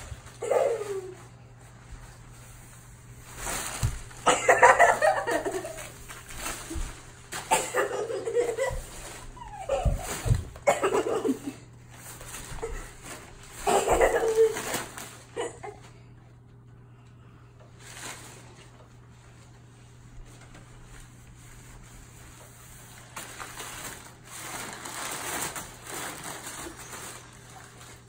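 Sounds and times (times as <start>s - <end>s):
packing paper rustling on carpet: 0.0s - 11.2s, 11.9s - 15.5s, 17.7s - 28.0s
child giggling: 0.4s - 1.2s, 4.3s - 6.0s, 7.6s - 11.6s, 13.6s - 14.8s.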